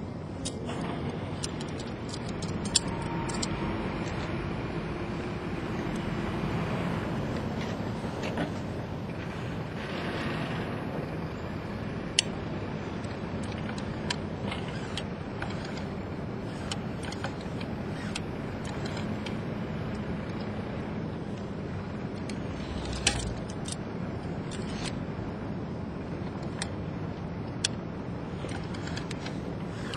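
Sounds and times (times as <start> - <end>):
outdoor background rumble: 0.0 - 29.9
metallic rope hardware clicks: 0.4 - 4.5, 12.1 - 20.6, 21.3 - 25.1, 26.2 - 29.9.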